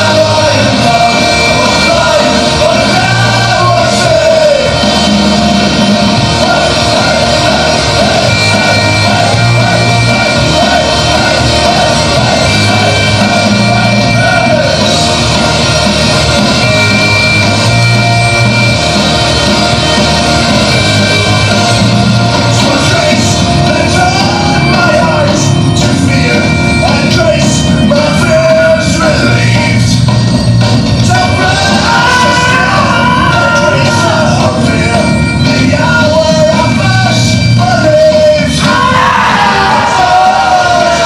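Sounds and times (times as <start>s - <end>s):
rock song with singing: 0.0s - 41.0s.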